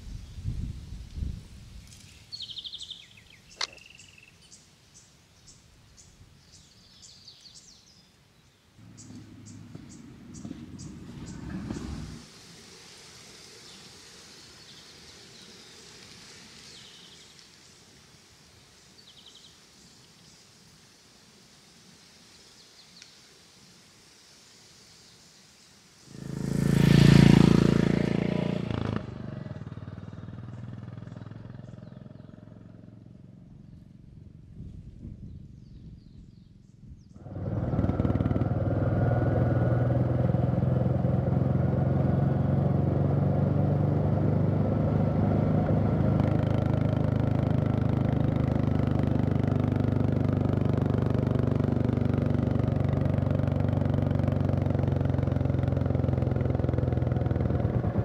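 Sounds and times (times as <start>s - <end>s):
motorcycle engine running steadily: 8.8s - 12.2s, 26.1s - 58.0s.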